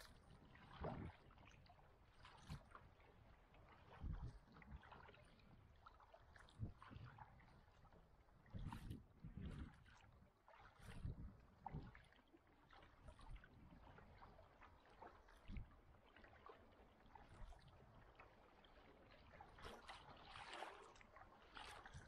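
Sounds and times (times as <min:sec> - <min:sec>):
paddle splashing in water: 0:16.2 - 0:22.0.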